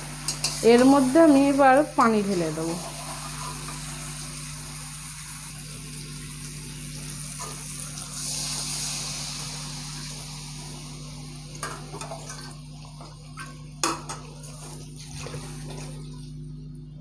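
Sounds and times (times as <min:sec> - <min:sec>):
water pouring and splashing: 0:02.0 - 0:10.8, 0:11.5 - 0:16.4.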